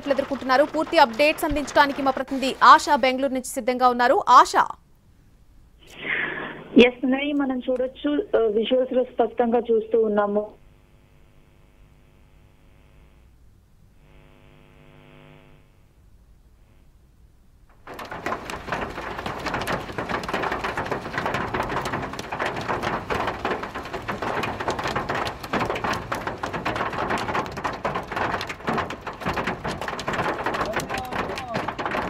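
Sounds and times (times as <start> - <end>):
hail and heavy rain pattering: 0.0 - 4.6, 17.7 - 32.0.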